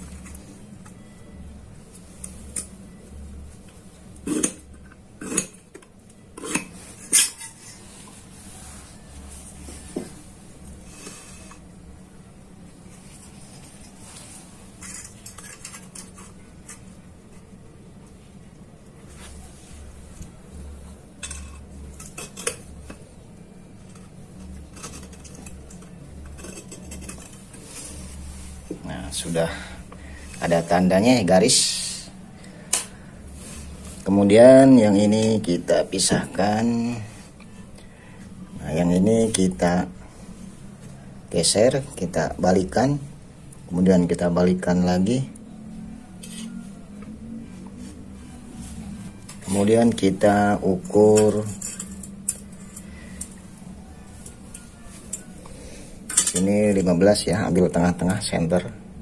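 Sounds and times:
scriber scratching steel tubes: 4.2 - 5.6, 6.4 - 9.6, 13.0 - 16.9, 23.8 - 29.4, 46.0 - 46.7, 47.8 - 55.4.

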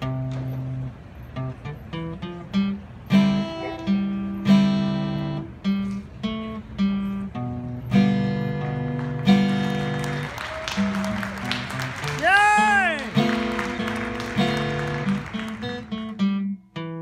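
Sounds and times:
acoustic guitar strumming: 0.0 - 10.2, 10.8 - 17.0.

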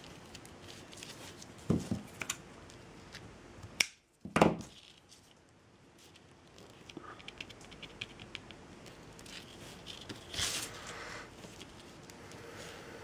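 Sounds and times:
rustle or scrape: 8.8 - 13.0.

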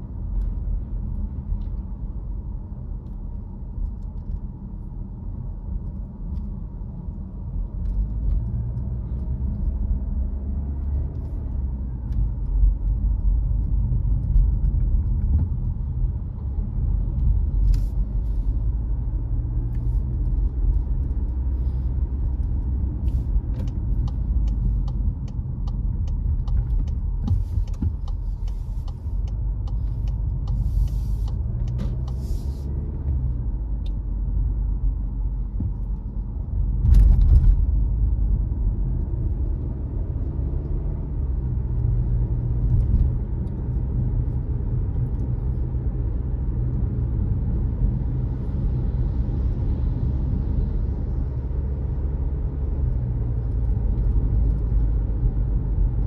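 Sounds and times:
car engine and tyres rumbling: 0.0 - 56.0
small clicks and ticks: 22.1 - 32.2.

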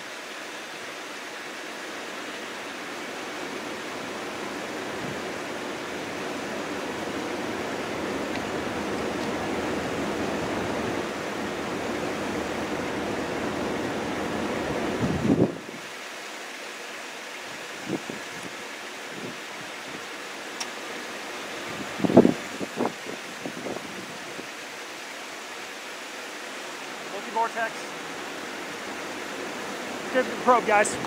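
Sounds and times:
rain: 0.0 - 31.0
storm wind: 2.0 - 15.9, 17.5 - 20.2, 21.4 - 24.6, 27.9 - 31.0.

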